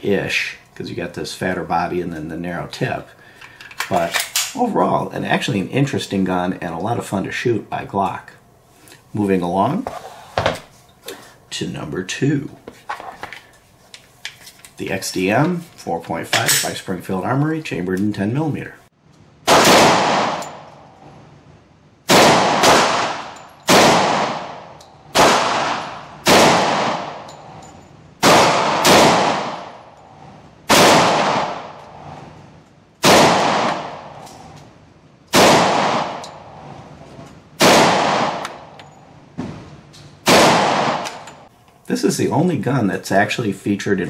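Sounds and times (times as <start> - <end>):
pistol shots with echo: 19.5 - 20.7, 22.1 - 27.3, 28.2 - 29.9, 30.7 - 31.8, 33.0 - 34.2, 35.3 - 36.2, 37.6 - 38.7, 40.2 - 41.3.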